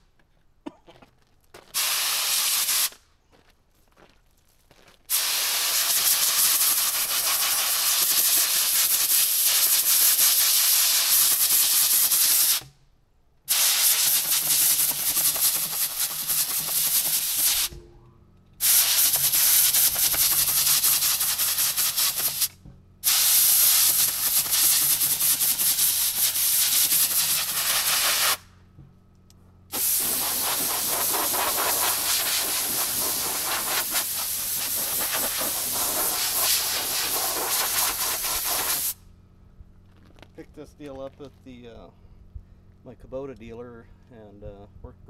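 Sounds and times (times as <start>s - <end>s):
compressed air blow gun hissing: 1.8s - 3.0s, 5.1s - 12.7s, 13.5s - 17.8s, 18.6s - 28.5s, 29.7s - 39.0s.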